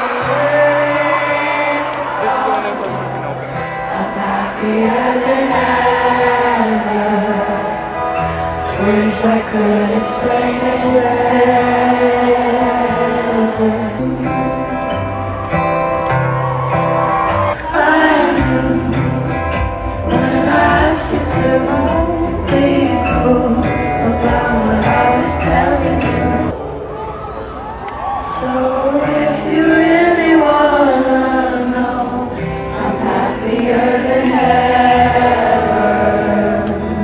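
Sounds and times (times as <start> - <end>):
live pop band playing: 0.0 - 26.6
woman singing into microphone: 8.6 - 14.6, 17.6 - 26.5, 28.2 - 37.0.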